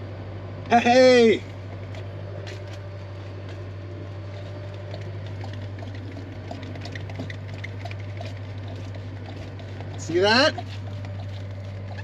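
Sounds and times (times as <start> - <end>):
steady low hum: 0.0 - 12.0
fuel gurgling and bubbling: 3.6 - 12.0.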